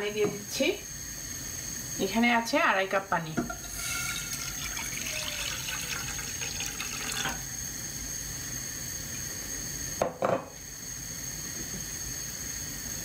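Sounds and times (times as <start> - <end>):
water splashing into a pan: 3.5 - 7.5.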